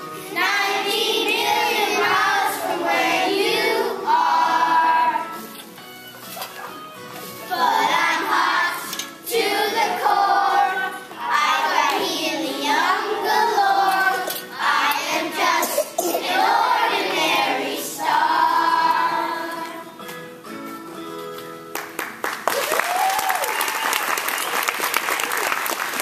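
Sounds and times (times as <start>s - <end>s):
children singing: 0.3s - 5.4s, 7.5s - 20.0s.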